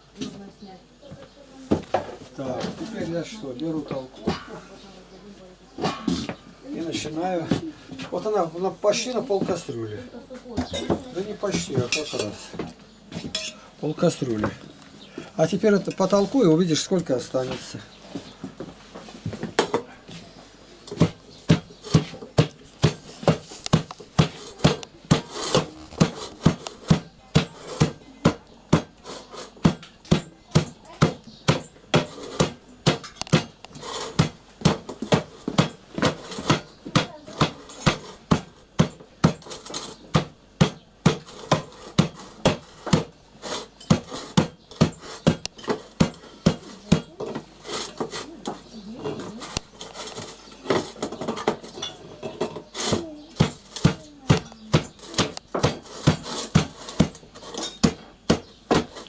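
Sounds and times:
wooden masher thudding in pot: 20.9s - 28.9s.

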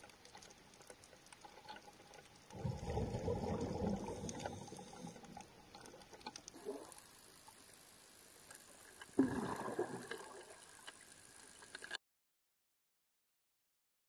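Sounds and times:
underwater water noise: 0.0s - 12.0s
burst of water sound: 9.2s - 10.6s.

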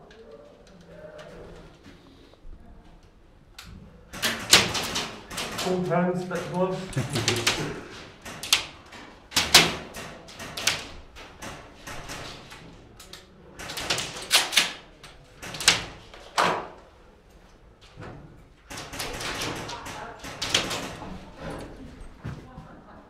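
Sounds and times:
sharp knocks and cracks: 4.1s - 16.8s, 17.9s - 21.6s.

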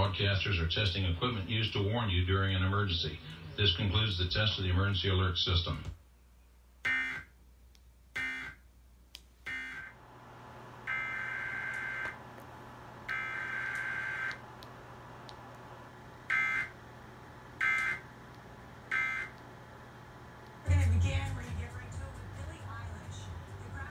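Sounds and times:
harsh buzzing data bursts: 6.8s - 7.3s, 8.2s - 8.6s, 9.5s - 10.0s, 10.8s - 12.2s, 13.1s - 14.4s, 16.3s - 16.8s, 17.6s - 18.1s, 18.9s - 19.4s.

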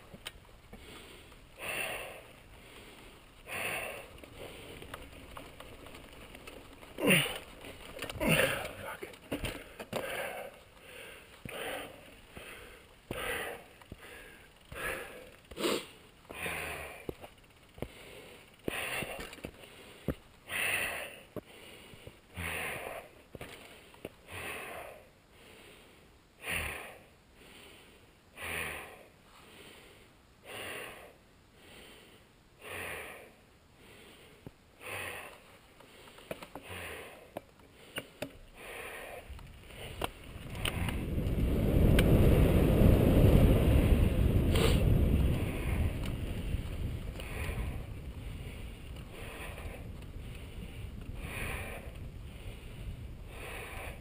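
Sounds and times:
person breathing hard: 0.7s - 5.0s, 9.5s - 41.0s, 47.1s - 54.0s
wind buffeting microphone: 39.2s - 54.0s.

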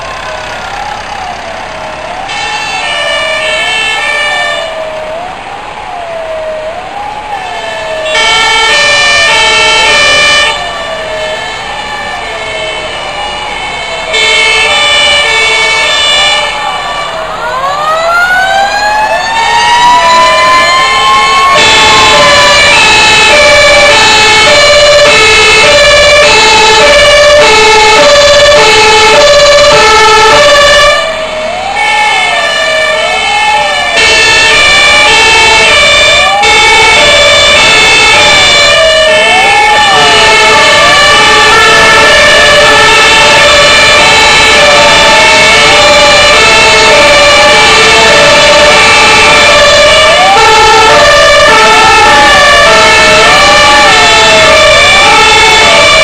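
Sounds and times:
wailing siren: 0.0s - 56.0s
two-tone horn: 14.1s - 16.6s
siren winding up: 16.0s - 56.0s.

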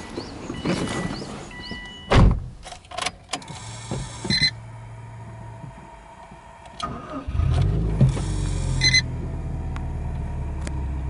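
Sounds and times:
fuel pump humming: 3.3s - 11.0s.

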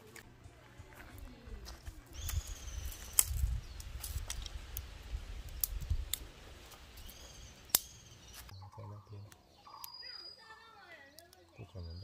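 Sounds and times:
twigs snapping: 2.2s - 8.5s, 11.1s - 11.6s.

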